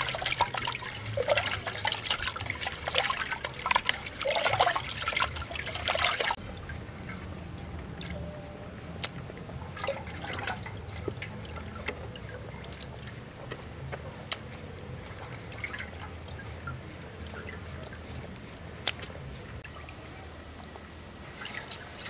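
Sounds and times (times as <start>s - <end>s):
water dripping and trickling: 0.0s - 22.0s
steady low rumble: 6.3s - 22.0s.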